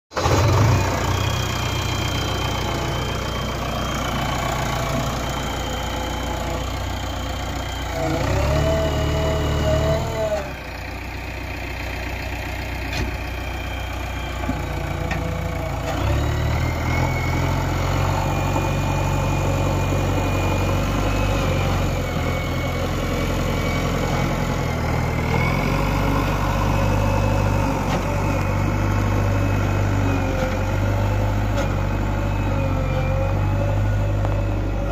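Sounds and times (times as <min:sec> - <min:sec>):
diesel engine working: 0:00.1 - 0:34.9.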